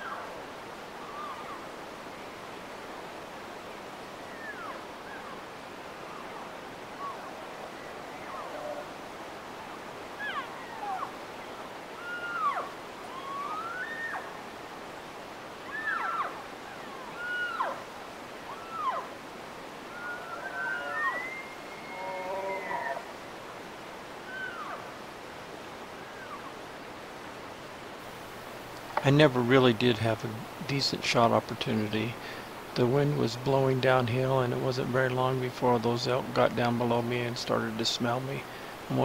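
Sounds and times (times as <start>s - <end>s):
background hiss: 0.0s - 39.0s
elk mewing calls: 11.9s - 14.4s, 15.6s - 17.9s, 18.5s - 19.2s, 19.9s - 23.1s, 24.3s - 24.9s.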